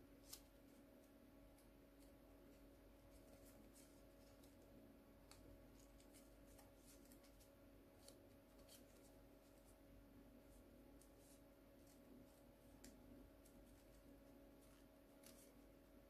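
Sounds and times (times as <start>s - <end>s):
low electrical hum: 0.0s - 16.0s
paper crinkling as it is folded: 2.0s - 9.8s, 11.0s - 15.7s.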